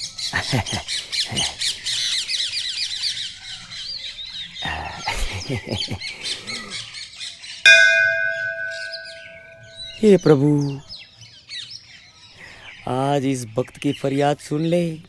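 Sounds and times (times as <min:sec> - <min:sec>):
small birds chirping: 0:00.0 - 0:15.0
temple bell ringing: 0:07.7 - 0:10.1.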